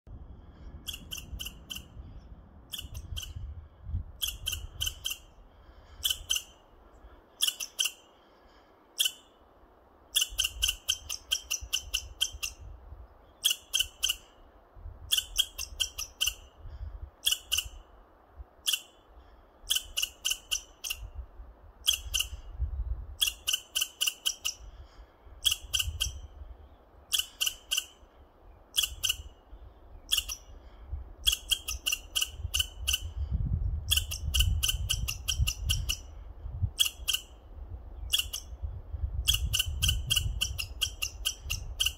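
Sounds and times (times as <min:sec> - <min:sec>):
squirrel chattering: 0:00.8 - 0:03.4, 0:04.2 - 0:06.6, 0:07.4 - 0:08.1, 0:10.1 - 0:12.7, 0:13.4 - 0:14.3, 0:15.0 - 0:16.5, 0:17.2 - 0:17.8, 0:19.6 - 0:21.2, 0:21.8 - 0:22.5, 0:23.2 - 0:24.8, 0:25.4 - 0:26.4, 0:27.1 - 0:28.0, 0:28.7 - 0:29.4, 0:30.0 - 0:30.5, 0:31.2 - 0:36.2, 0:36.8 - 0:37.4, 0:38.0 - 0:41.9.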